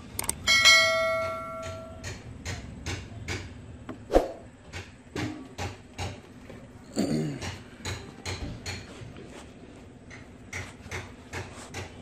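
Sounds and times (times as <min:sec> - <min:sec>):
metal parts and tools knocking: 0:00.2 - 0:03.5
ringing metal note: 0:00.4 - 0:02.0.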